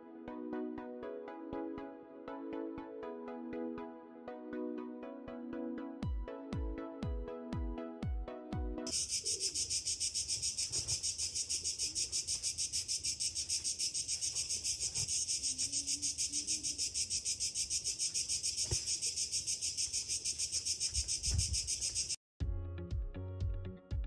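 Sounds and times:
cicadas buzzing: 8.9s - 22.2s.

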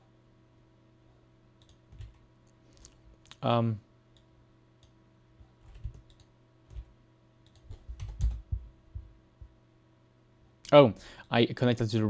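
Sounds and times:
keyboard and mouse clicks: 5.7s - 8.5s.

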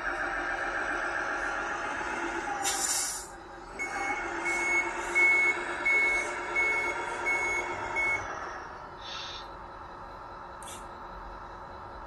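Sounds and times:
truck engine sound: 0.0s - 12.0s
reversing beeper: 3.2s - 12.0s.

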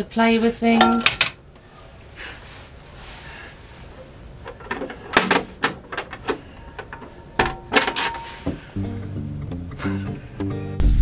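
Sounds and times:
metal clicks and knocks: 4.4s - 8.2s.

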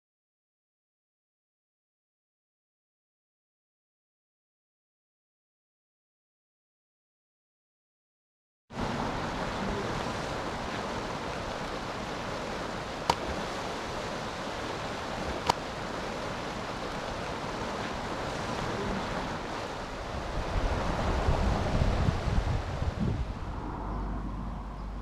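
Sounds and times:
water rushing over concrete drop: 8.8s - 23.5s
wind rumble on microphone: 16.9s - 25.0s.

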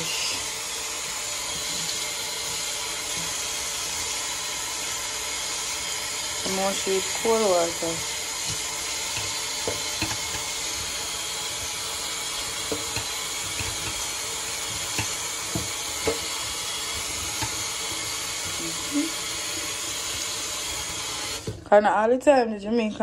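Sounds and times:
tap running into a sink: 8.0s - 21.6s.

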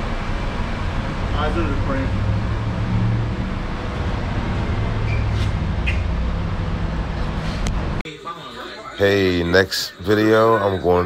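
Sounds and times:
low vehicle rumble: 0.0s - 8.0s.

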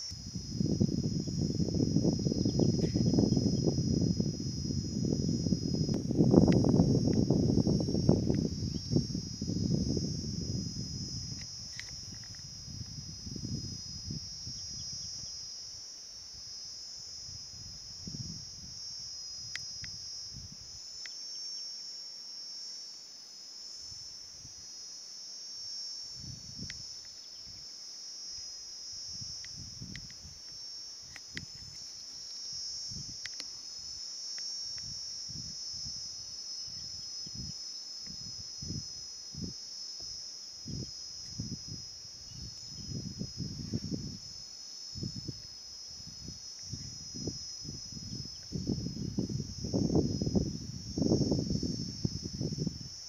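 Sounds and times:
insect chorus droning: 0.0s - 53.0s
faint ticks: 21.0s - 21.2s, 26.6s - 27.6s, 29.4s - 32.5s, 33.2s - 33.6s.

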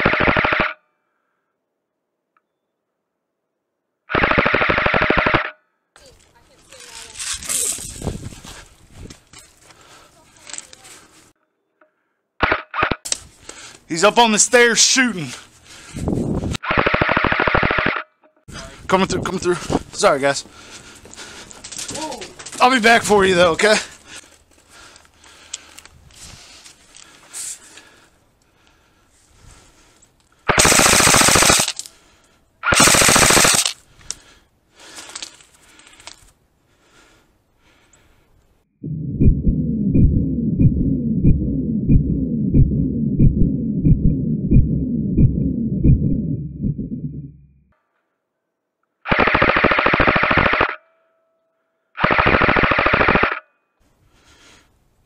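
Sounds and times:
airsoft rifle full-auto bursts: 4.1s - 5.5s, 16.6s - 18.0s, 30.5s - 31.9s, 32.6s - 33.8s, 49.1s - 50.8s, 52.0s - 53.4s.

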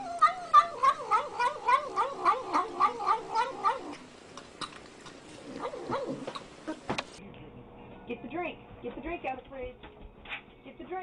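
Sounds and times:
cat growl-mewing while eating: 0.0s - 4.1s, 5.4s - 6.8s.

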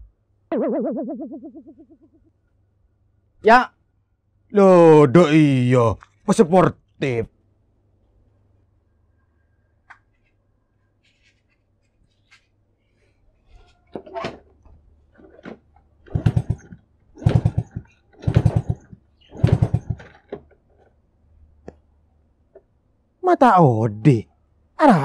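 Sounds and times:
motorcycle kick-start turning over: 15.2s - 20.4s.

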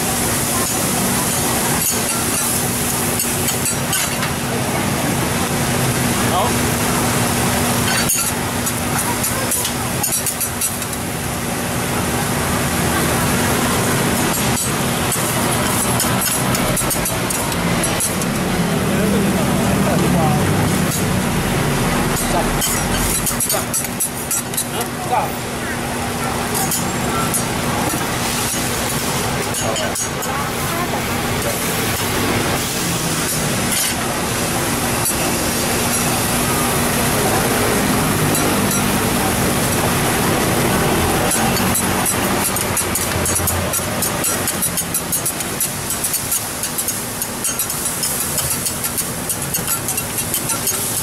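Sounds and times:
food sizzling: 0.0s - 51.0s
metal spatulas scraping griddle: 7.8s - 11.0s, 14.1s - 18.4s, 22.1s - 24.9s, 40.4s - 51.0s.

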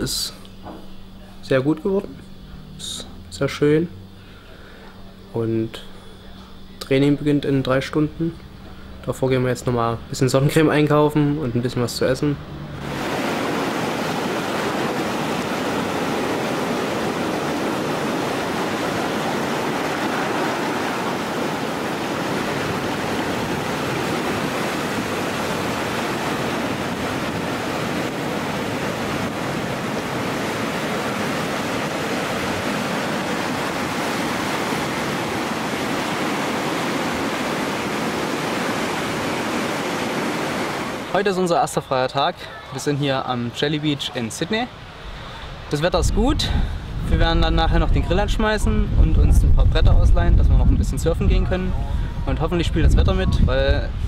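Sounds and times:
rushing whitewater: 12.8s - 45.9s.

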